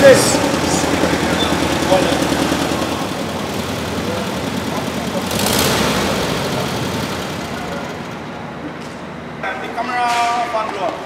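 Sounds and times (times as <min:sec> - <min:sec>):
car engine idling: 0:00.0 - 0:09.8.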